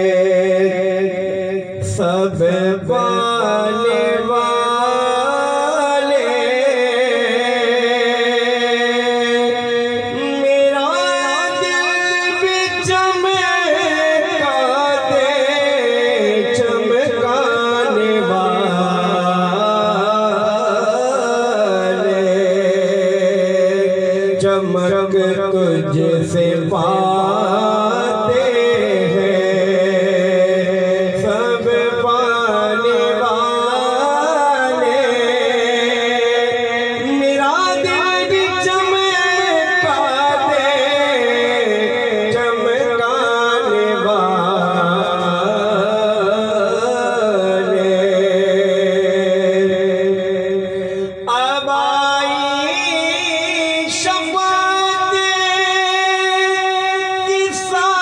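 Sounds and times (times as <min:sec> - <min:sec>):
man singing into a microphone: 0:00.0 - 0:58.0.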